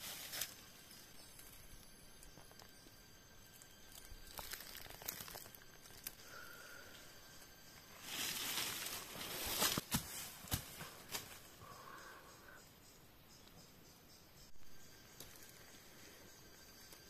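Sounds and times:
leaf litter rustling and crackling: 0:00.0 - 0:00.7, 0:03.6 - 0:06.5, 0:07.5 - 0:11.3.

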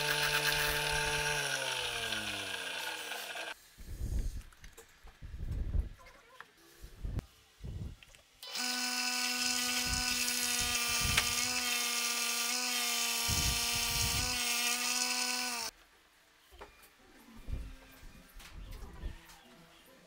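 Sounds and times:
electric motor humming: 0:00.0 - 0:03.6, 0:08.4 - 0:15.7
sanding disc hissing on wood: 0:08.6 - 0:15.7.

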